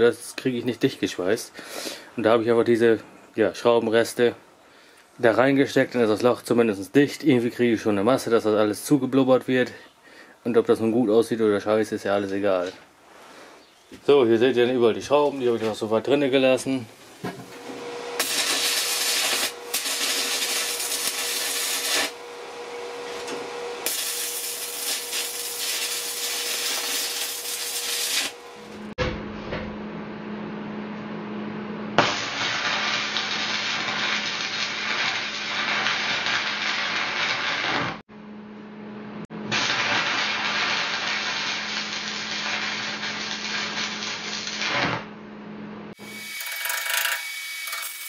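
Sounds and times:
welding arc crackling and sizzling: 17.6s - 22.3s, 23.0s - 28.9s, 32.0s - 38.0s, 39.5s - 45.1s, 45.9s - 48.0s.

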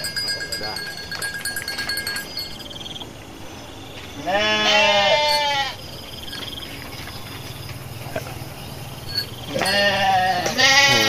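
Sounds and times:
sheep bleating: 4.2s - 5.8s, 9.5s - 11.0s.

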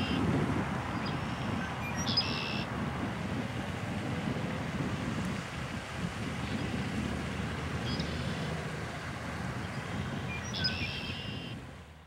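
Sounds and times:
wind rumbling on microphone: 0.0s - 12.0s
blackbird calling: 1.0s - 2.7s, 9.6s - 11.6s.

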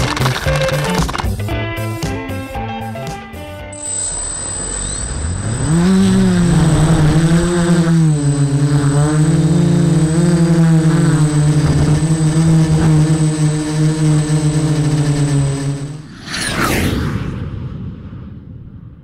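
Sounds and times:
drone motors humming: 2.9s - 16.6s.

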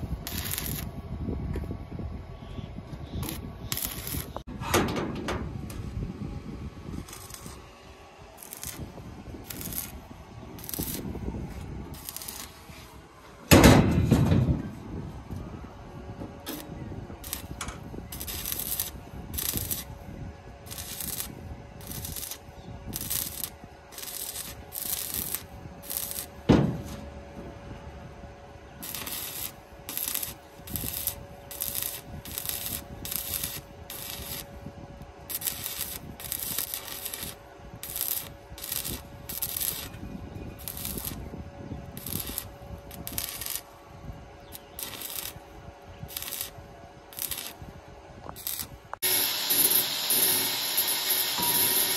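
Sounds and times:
welding arc crackling: 0.0s - 1.0s, 3.2s - 4.5s, 7.0s - 7.6s, 8.3s - 11.2s, 11.9s - 12.7s, 16.5s - 20.0s, 20.6s - 26.5s, 28.8s - 40.0s, 40.6s - 41.2s, 41.9s - 43.8s, 44.5s - 47.7s, 48.3s - 51.9s
loud metal knocks: 13.5s - 14.6s, 26.4s - 27.6s.

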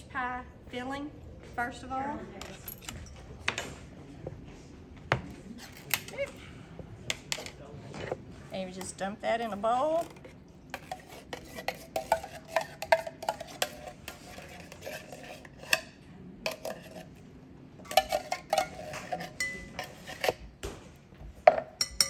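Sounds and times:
metal spoon scraping tin can: 10.0s - 15.9s, 16.5s - 17.1s, 17.9s - 20.4s.

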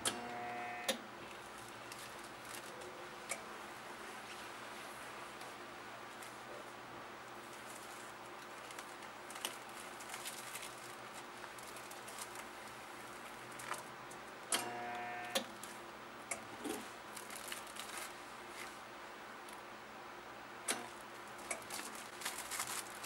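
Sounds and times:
plastic film crinkling: 1.2s - 3.1s, 7.4s - 14.0s, 16.6s - 18.8s, 20.9s - 23.0s.

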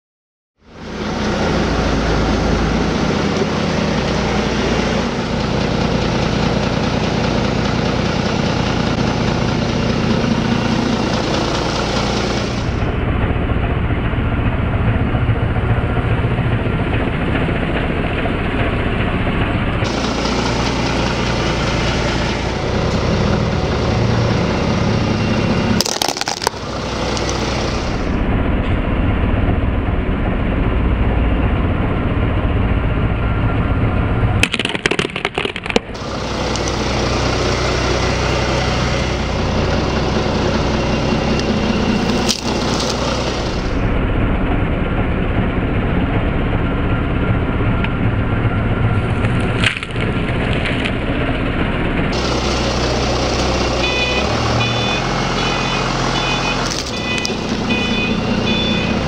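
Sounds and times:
forklift engine running: 0.6s - 59.0s.

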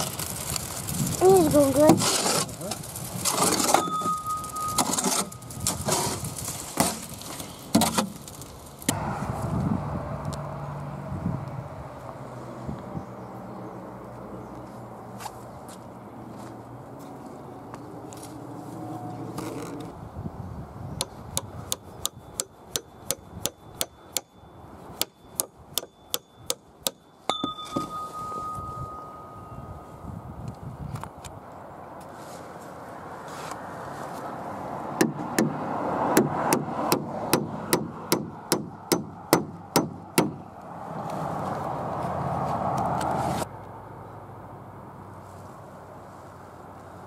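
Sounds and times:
scraping wet concrete: 0.0s - 8.9s
metallic clang ringing: 3.7s - 5.4s, 23.7s - 29.8s
hammer tapping metal: 25.0s - 28.6s
steady high tone: 27.0s - 30.2s.

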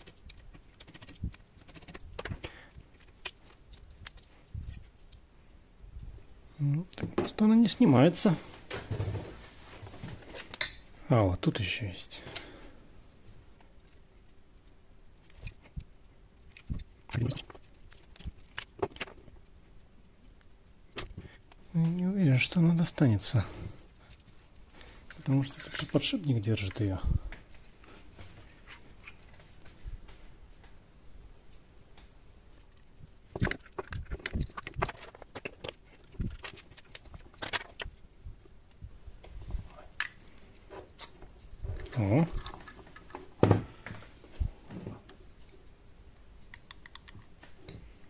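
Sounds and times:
screwdriver clicks and taps: 46.5s - 47.3s.

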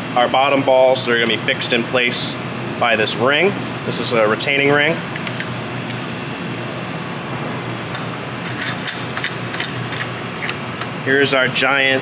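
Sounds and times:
mechanical room hum: 0.0s - 12.0s.

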